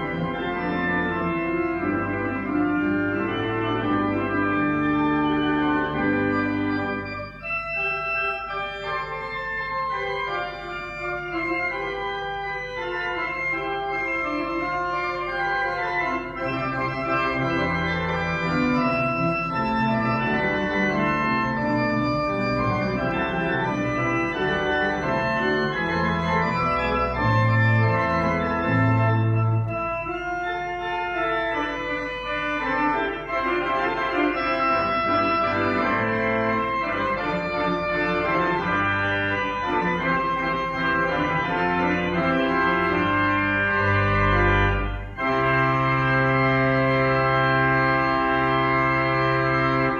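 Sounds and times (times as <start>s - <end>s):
pipe organ playing chords: 0.0s - 49.9s.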